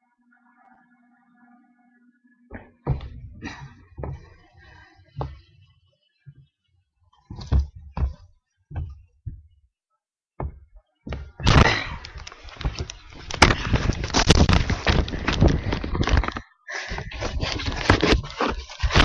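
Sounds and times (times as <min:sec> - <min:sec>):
dull thuds: 0:02.5 - 0:04.5, 0:07.3 - 0:09.7, 0:10.4 - 0:19.0
webcam being handled: 0:11.5 - 0:16.4.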